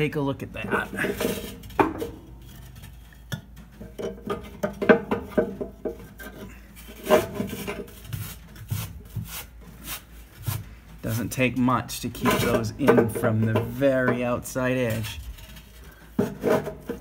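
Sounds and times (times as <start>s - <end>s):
bricks scraping on steel: 0.8s - 3.3s.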